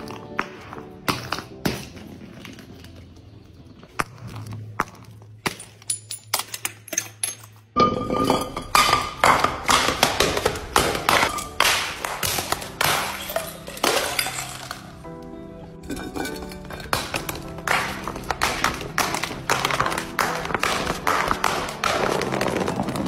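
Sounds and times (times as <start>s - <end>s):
glass jars tumbling down steps: 5.9s - 15.0s, 15.8s - 23.0s.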